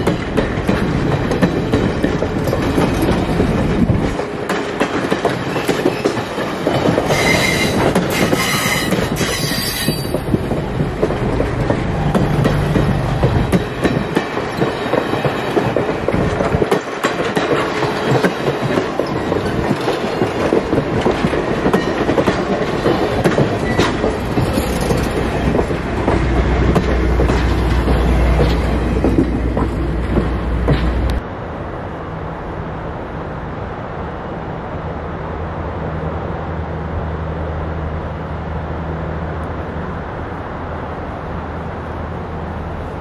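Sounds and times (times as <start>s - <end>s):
train wheels clicking over rail joints: 0.0s - 31.2s
distant diesel locomotive drone: 0.0s - 43.0s
train rumble: 0.0s - 43.0s.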